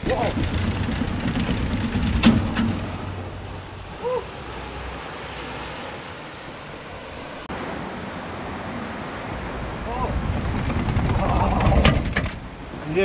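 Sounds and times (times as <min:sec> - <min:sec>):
sea surf: 0:00.0 - 0:13.0
wind on microphone: 0:09.4 - 0:12.8.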